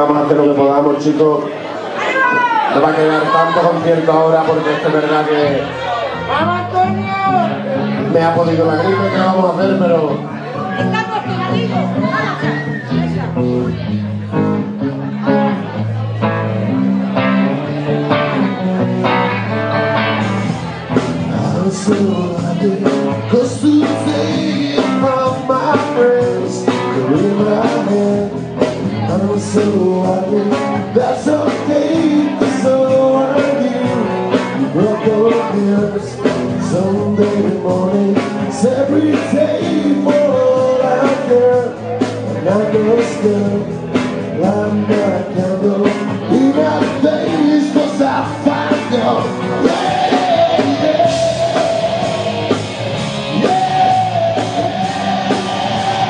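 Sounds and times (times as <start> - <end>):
electric guitar: 0.0 - 56.0
live rock band playing: 0.0 - 56.0
person singing: 20.6 - 56.0.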